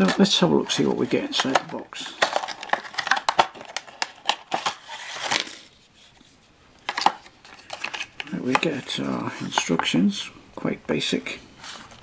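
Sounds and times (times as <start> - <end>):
plastic wrapper crinkling: 0.0 - 5.8, 6.8 - 9.0.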